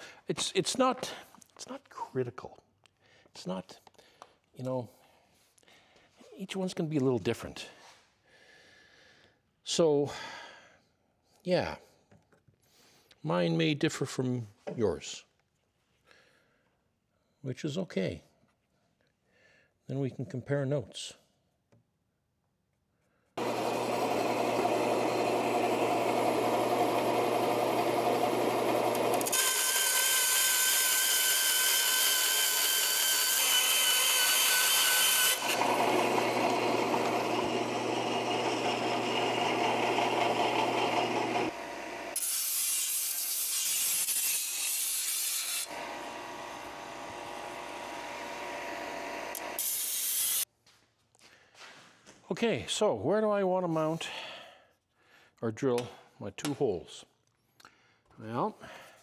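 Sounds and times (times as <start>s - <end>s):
band saw cutting metal sheet: 23.4s - 50.4s
belt sander: 23.4s - 50.4s.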